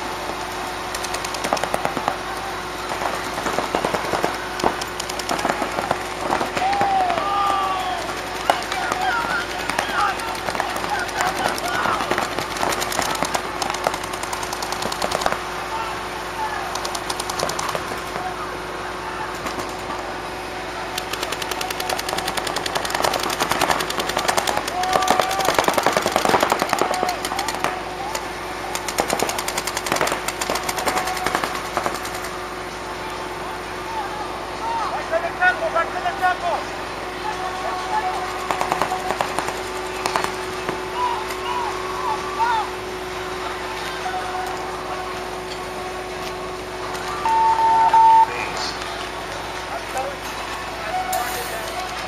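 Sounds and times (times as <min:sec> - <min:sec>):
paintball markers firing: 0:00.9 - 0:02.2, 0:03.4 - 0:07.5, 0:08.1 - 0:15.4, 0:16.7 - 0:18.0, 0:20.9 - 0:32.3.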